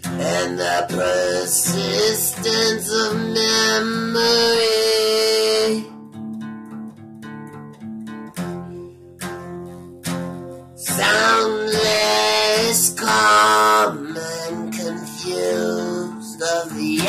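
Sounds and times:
man singing: 0:00.0 - 0:06.1, 0:10.8 - 0:17.0
acoustic guitar strumming: 0:00.0 - 0:17.0.

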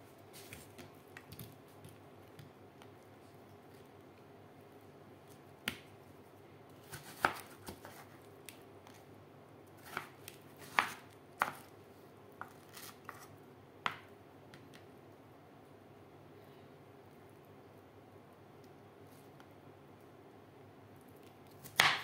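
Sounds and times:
knife slicing watermelon rind: 0:06.8 - 0:08.2.

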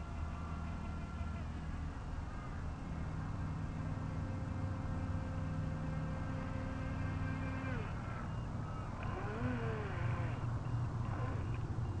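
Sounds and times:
electric motor whining: 0:03.5 - 0:12.0.

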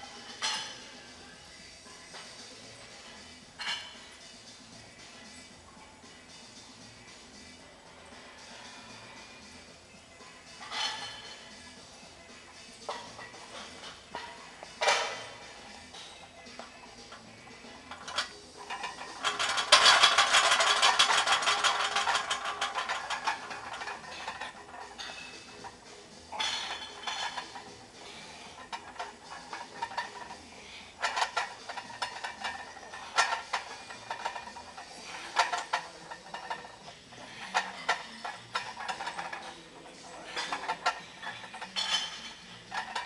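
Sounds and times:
barbell weight plates rattling: 0:17.9 - 0:30.4.

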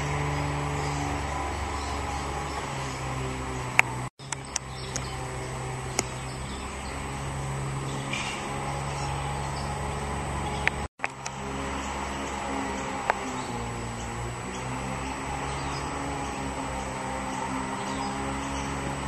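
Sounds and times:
steady low hum: 0:00.0 - 0:19.0
faint chirps and clicks: 0:03.7 - 0:05.2, 0:05.9 - 0:06.3, 0:10.6 - 0:11.4.

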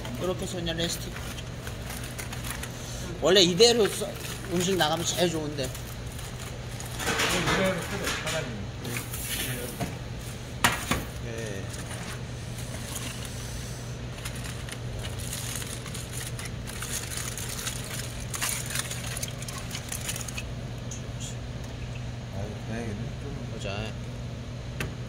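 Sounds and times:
aluminium foil crinkling: 0:00.0 - 0:09.7, 0:11.1 - 0:20.5.

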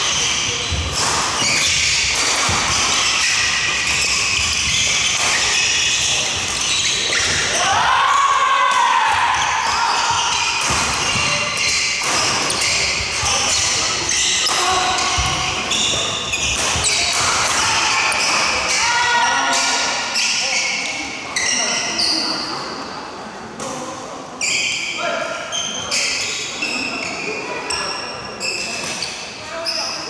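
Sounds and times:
shoes squeaking on wooden court: 0:00.0 - 0:07.6, 0:09.3 - 0:22.5, 0:24.4 - 0:30.0
players calling and chatter: 0:00.0 - 0:30.0
rackets striking shuttlecock: 0:00.2 - 0:07.4, 0:10.5 - 0:18.5.

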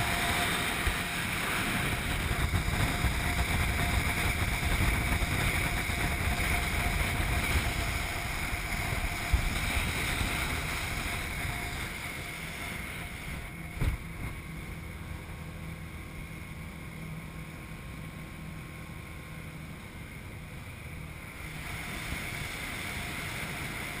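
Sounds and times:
wind on microphone: 0:00.0 - 0:15.1
motorboat engine hum: 0:00.0 - 0:24.0
water rushing from wake: 0:00.0 - 0:24.0.

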